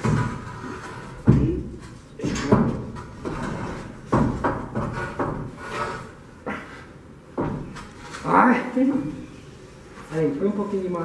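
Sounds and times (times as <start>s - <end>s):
wall block knocking: 0.0s - 6.0s, 7.3s - 7.9s.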